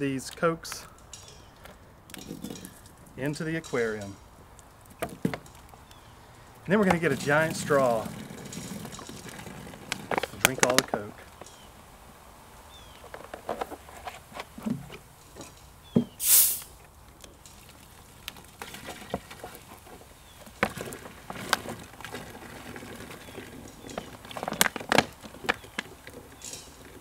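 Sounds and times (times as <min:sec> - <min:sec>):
short loud hiss: 0:16.2 - 0:16.8.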